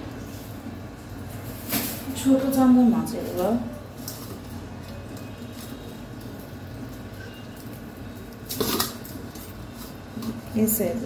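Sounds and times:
frozen fish scraping in steel bowl: 3.2 - 10.9.

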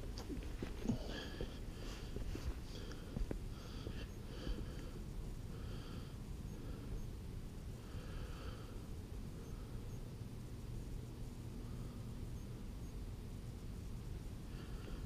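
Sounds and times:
person breathing hard: 0.6 - 7.0, 7.7 - 9.9, 14.4 - 15.0.

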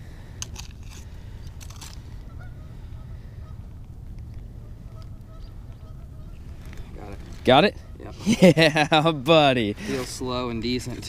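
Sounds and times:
low wind rumble on microphone: 0.0 - 8.9
faint honking bird calls: 2.1 - 8.1.

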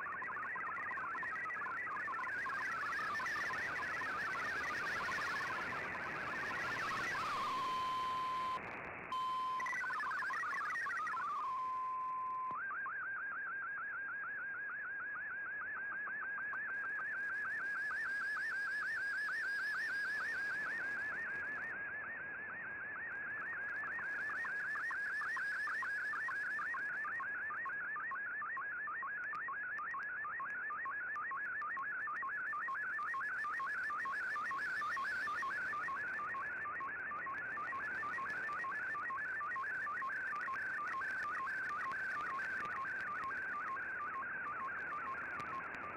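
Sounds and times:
warbling radio data tone: 0.0 - 12.9, 16.4 - 21.7, 23.2 - 27.7, 32.4 - 45.9.

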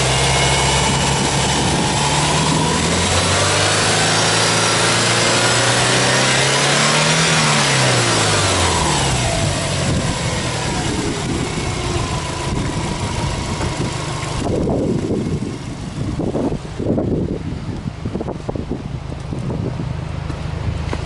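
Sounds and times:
car engine revving and idling: 0.0 - 21.0
wind buffeting microphone: 0.5 - 3.7, 9.0 - 21.0.

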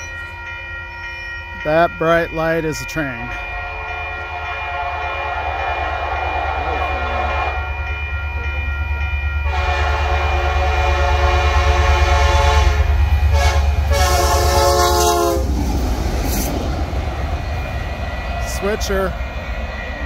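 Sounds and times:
locomotive rumble: 0.0 - 20.0
locomotive air horn: 3.9 - 7.8, 9.5 - 15.5.

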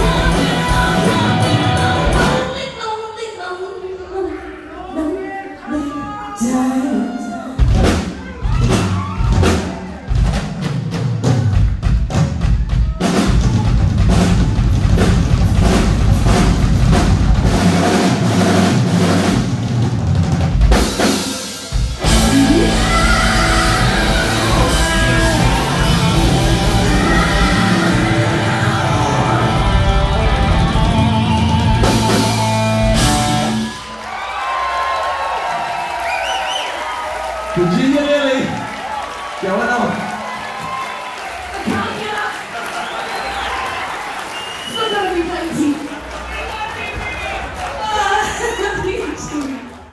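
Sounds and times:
rock band playing: 0.0 - 2.7, 7.6 - 34.5
person singing: 0.0 - 4.3, 22.0 - 33.4
drum hits: 7.6 - 33.6.

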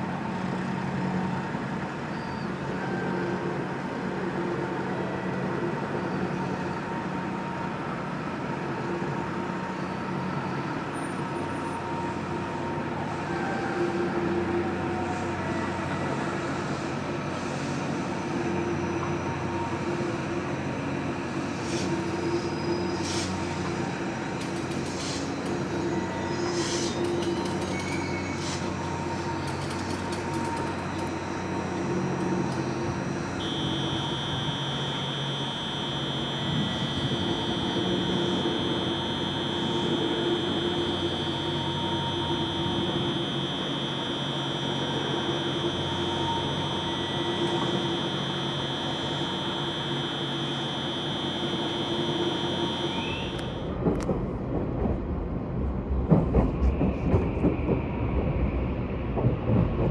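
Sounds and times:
electric train humming: 0.0 - 59.9
steady high-pitched tone: 28.7 - 53.8.

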